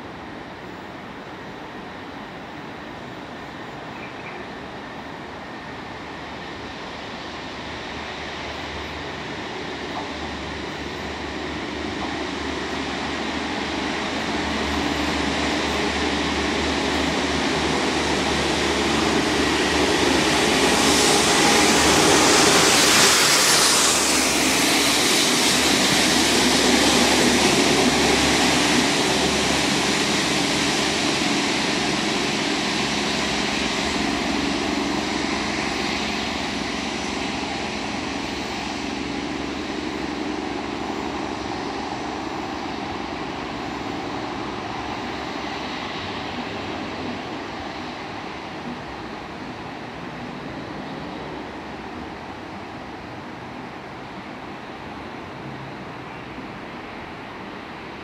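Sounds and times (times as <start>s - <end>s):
diesel train engine: 0.0s - 58.0s
train wheels on rails: 0.0s - 58.0s
high-pressure water jets hissing: 12.6s - 48.2s.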